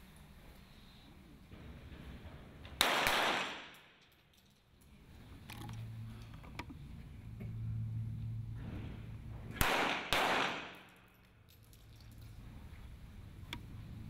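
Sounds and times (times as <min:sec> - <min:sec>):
pistol shot: 0:02.8 - 0:04.0, 0:09.6 - 0:11.0.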